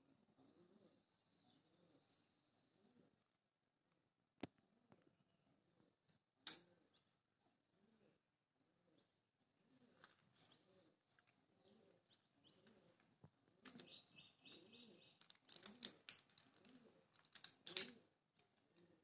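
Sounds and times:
doves cooing softly: 0.0s - 3.4s, 4.6s - 19.0s
high chirping: 13.7s - 15.3s.

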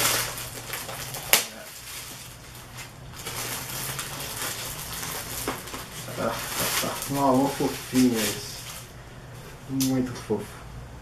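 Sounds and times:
plastic bag crinkling: 0.0s - 9.0s.

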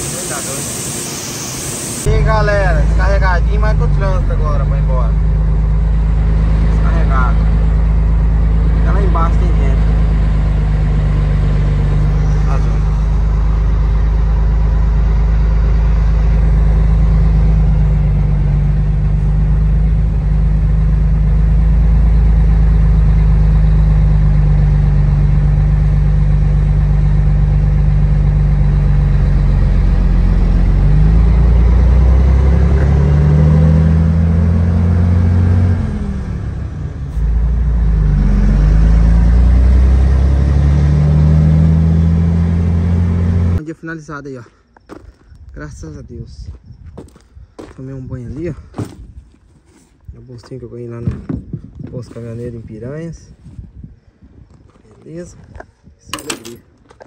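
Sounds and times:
truck diesel engine revving: 0.0s - 43.6s.

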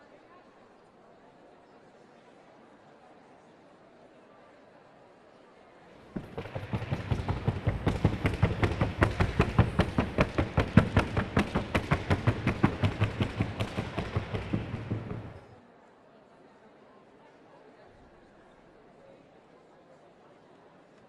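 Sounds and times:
hooves beating on wooden board: 6.0s - 15.4s.

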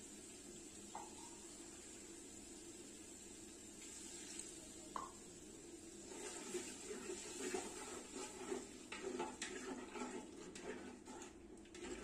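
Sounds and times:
metal spoon scraping pot: 6.2s - 12.0s.

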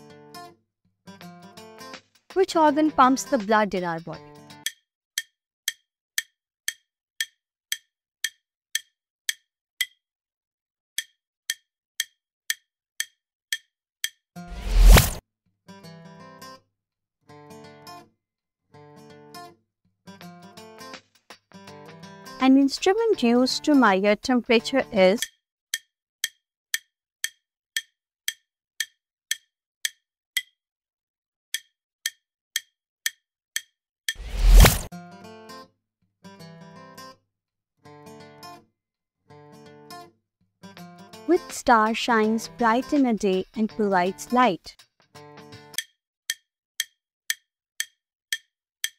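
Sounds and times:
timer clock ticks: 2.4s - 10.0s, 11.0s - 14.2s, 22.4s - 30.6s, 31.5s - 34.6s, 45.8s - 48.9s.

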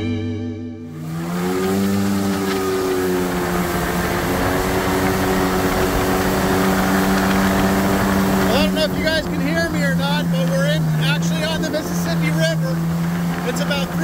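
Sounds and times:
background music: 0.0s - 2.3s
jet ski engine running: 0.9s - 14.0s
wind and water hiss: 0.9s - 14.0s.

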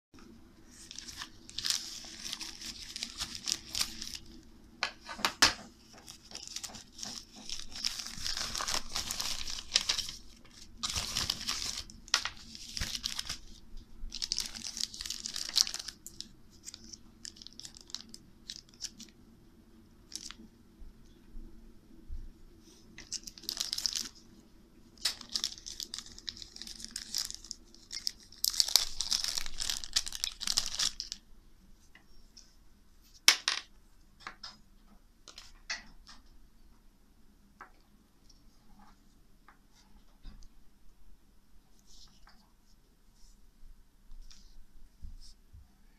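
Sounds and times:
plastic packaging crinkling and tearing: 0.7s - 4.4s, 5.9s - 19.2s, 20.1s - 20.4s, 23.0s - 24.2s, 25.0s - 31.2s.

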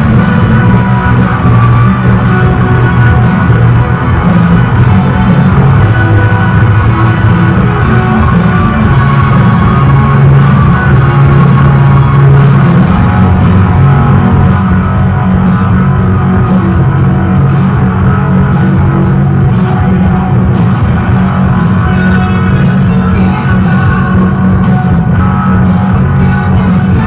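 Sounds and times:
drum kit beat: 0.0s - 27.0s
electric guitar: 0.0s - 27.0s.

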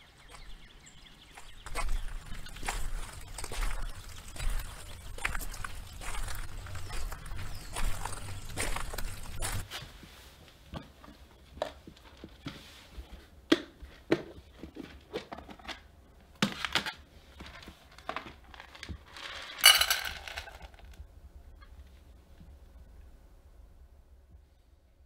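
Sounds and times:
dry pet food rattling into metal bowl: 18.1s - 20.9s.

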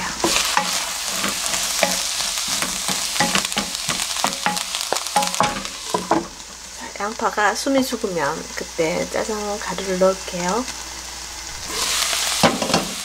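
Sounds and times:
onions sizzling in a wok: 0.0s - 13.0s
spatula knocking and scraping pan: 0.1s - 6.5s, 12.4s - 13.0s.

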